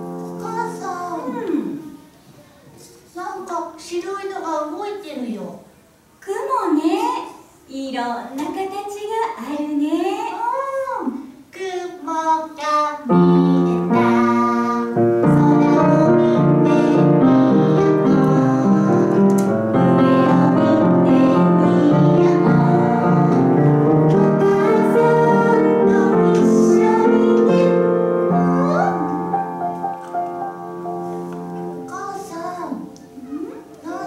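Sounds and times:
piano accompaniment: 0.0s - 1.7s, 13.1s - 34.0s
woman singing: 11.6s - 19.4s.

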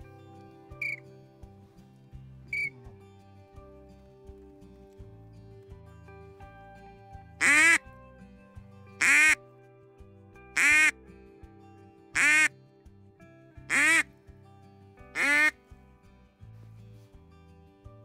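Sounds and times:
background music: 0.0s - 18.0s
duck call quacks: 7.4s - 7.8s, 9.0s - 9.4s, 10.6s - 10.9s, 12.2s - 12.5s, 13.7s - 14.1s, 15.2s - 15.6s.

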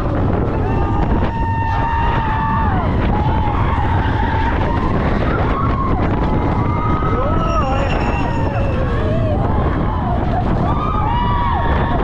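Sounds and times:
wind rushing over microphone: 0.0s - 12.0s
roller coaster wheels squealing: 0.1s - 12.0s.

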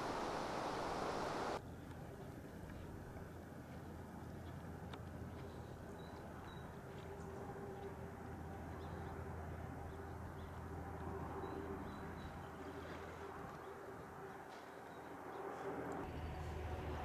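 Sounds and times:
steady low hum: 0.0s - 1.8s.

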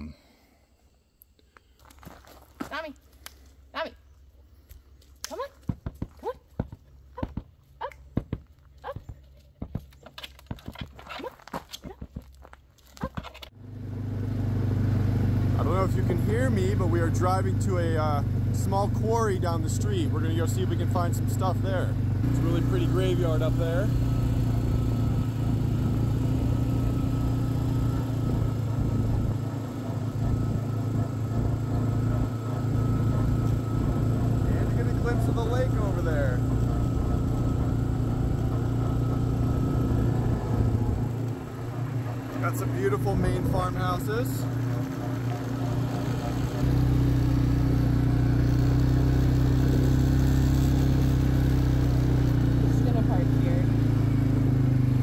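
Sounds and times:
car engine and road noise: 6.7s - 55.0s
tyres rolling on gravel: 29.4s - 46.7s.

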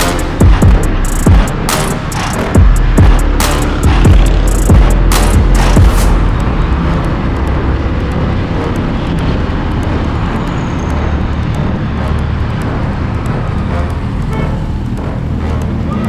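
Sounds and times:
motorcycle engine running: 0.0s - 10.2s.

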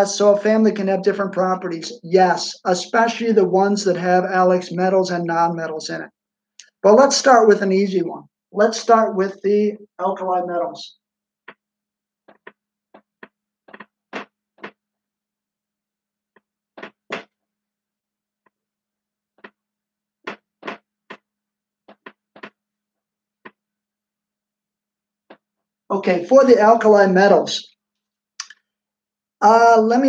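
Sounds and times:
marker pen writing on whiteboard: 11.4s - 15.0s, 16.3s - 17.5s, 19.2s - 23.7s, 25.2s - 25.7s.

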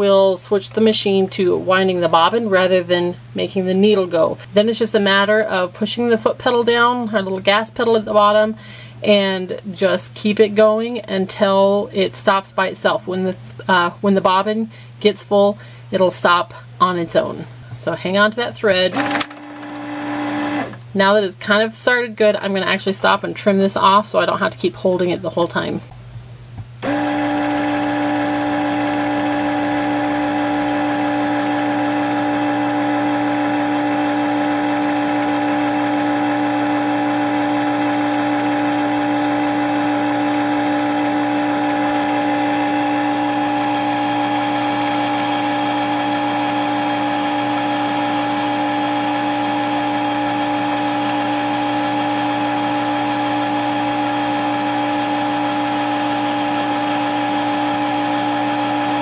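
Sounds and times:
sewing machine motor whining: 18.9s - 20.8s, 26.8s - 59.0s.

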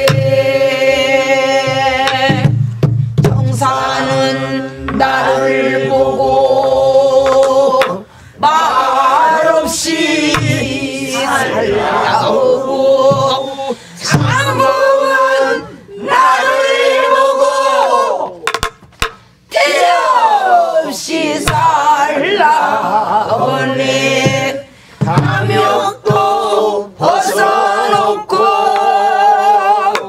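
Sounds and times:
drum knocks: 0.0s - 0.5s, 1.5s - 5.2s, 10.2s - 10.7s, 13.0s - 13.5s, 18.5s - 19.2s, 21.4s - 21.8s, 24.2s - 26.4s.

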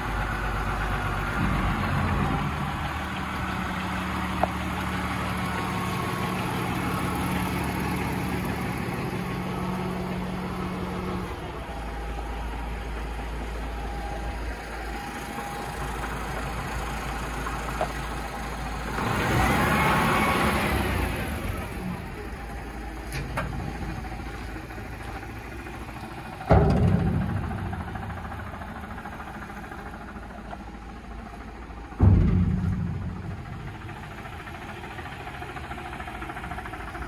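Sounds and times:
diesel truck engine idling: 0.0s - 37.0s
loud thump: 1.3s - 4.6s, 26.4s - 29.2s, 31.9s - 35.2s.

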